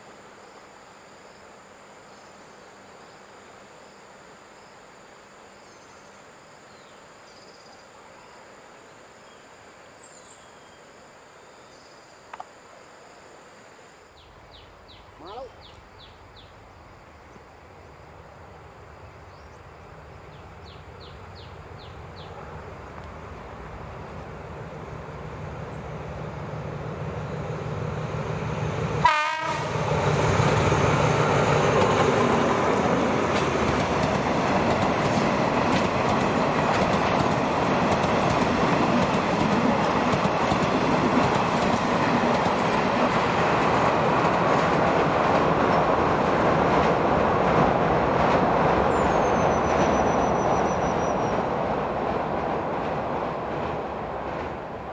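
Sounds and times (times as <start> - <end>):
diesel locomotive engine: 19.7 - 54.9
train horn blast: 28.8 - 29.9
wheels clacking over rail joints: 30.4 - 50.6, 51.3 - 54.9.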